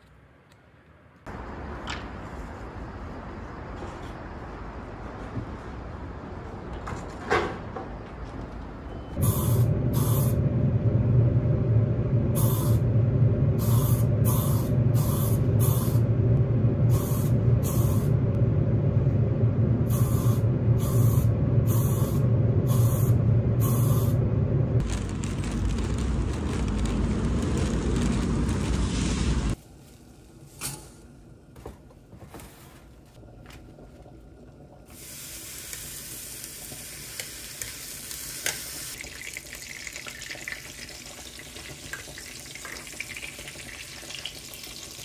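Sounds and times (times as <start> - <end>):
outdoor street noise: 0.0 - 29.8
ventilation hum: 9.2 - 45.0.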